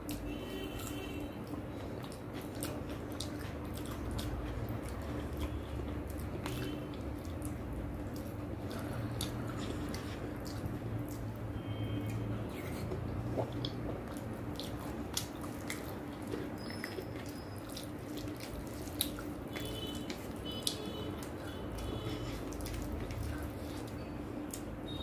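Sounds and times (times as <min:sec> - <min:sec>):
chewing and lip smacks: 0:00.0 - 0:24.8
fingers squelching food: 0:00.1 - 0:24.7.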